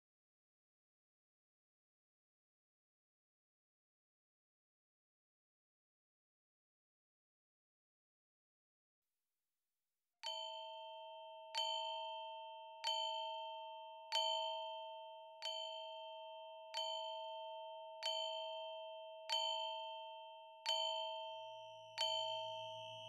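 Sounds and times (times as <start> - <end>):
bell-like chime strikes: 10.3 - 18.8, 19.4 - 23.0.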